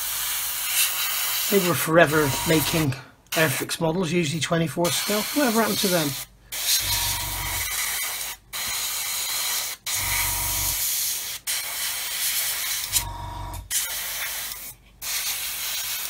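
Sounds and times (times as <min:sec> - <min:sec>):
airbrush spraying hiss: 0:13.7 - 0:16.0.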